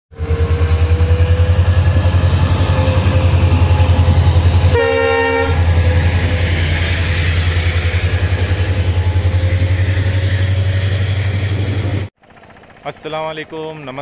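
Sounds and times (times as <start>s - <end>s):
diesel locomotive engine rumbling: 0.1s - 14.0s
train horn blast: 2.3s - 10.5s.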